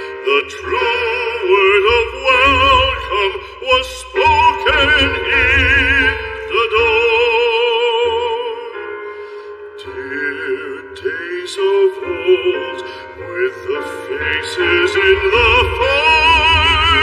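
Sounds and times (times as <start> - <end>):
low musical accompaniment: 0.0 - 17.0
operatic singing voice: 0.0 - 17.0.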